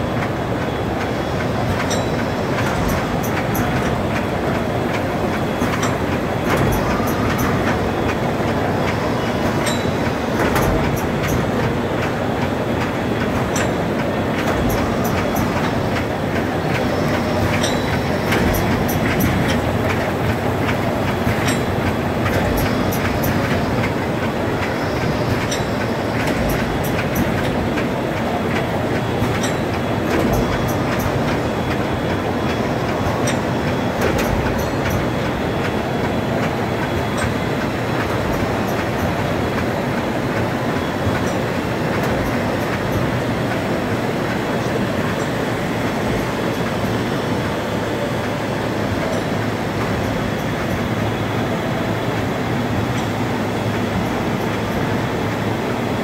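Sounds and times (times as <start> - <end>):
machine running: 0.0 - 56.0
sharp machine clicks: 12.8 - 47.1.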